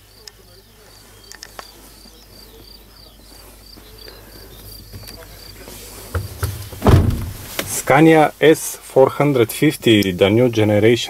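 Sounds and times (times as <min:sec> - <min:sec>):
faint high-pitched chirping: 0:00.0 - 0:06.9
low knocks: 0:06.1 - 0:07.7
loud thump: 0:06.1 - 0:07.8.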